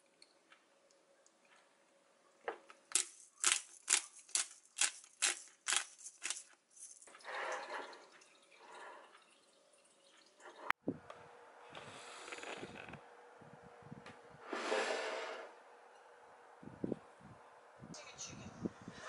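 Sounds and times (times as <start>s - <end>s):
pepper grinder crunching: 2.9s - 7.1s.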